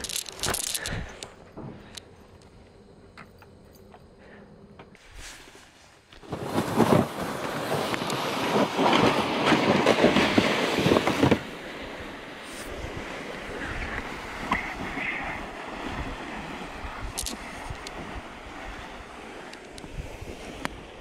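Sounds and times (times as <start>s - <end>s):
wind buffeting microphone: 6.3s - 21.0s.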